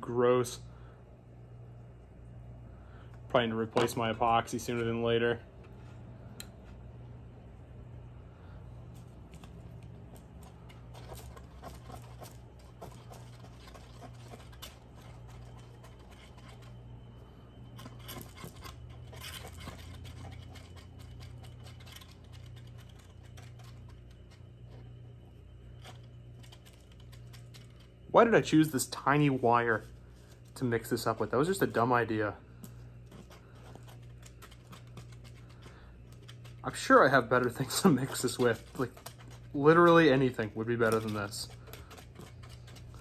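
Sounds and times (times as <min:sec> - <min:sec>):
low hum: 0:00.0 - 0:43.0
wire scratching on cardboard: 0:09.0 - 0:28.0, 0:32.6 - 0:43.0.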